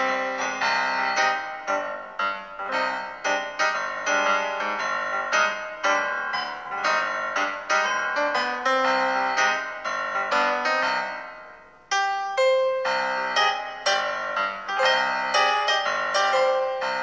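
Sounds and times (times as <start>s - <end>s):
piano music: 0.0s - 17.0s.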